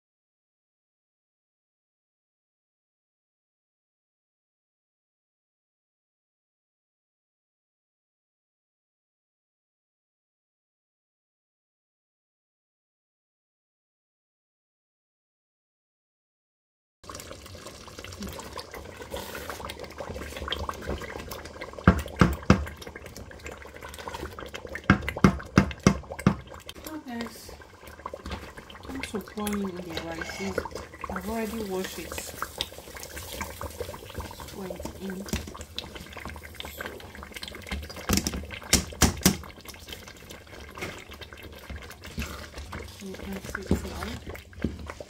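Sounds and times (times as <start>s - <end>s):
liquid sloshing: 17.2s - 45.0s
knocks on a pot: 21.8s - 22.7s, 24.8s - 26.5s, 38.1s - 39.4s
spoon stirring stew: 27.6s - 45.0s.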